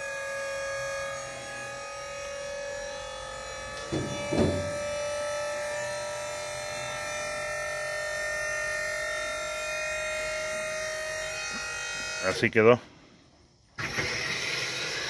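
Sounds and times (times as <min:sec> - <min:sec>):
electric motor buzzing hum: 0:00.8 - 0:07.2
knocks: 0:03.8 - 0:05.0.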